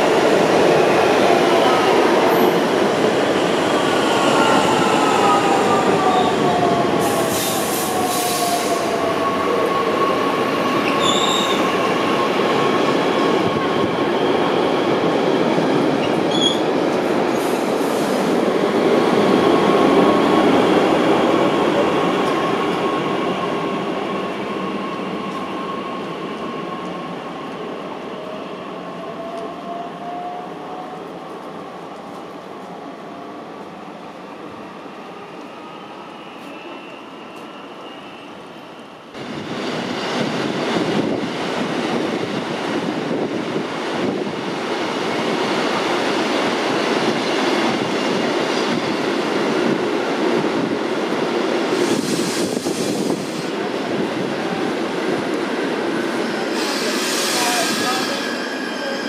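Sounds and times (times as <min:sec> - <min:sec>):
high wheel squeals: 0:10.8 - 0:11.6.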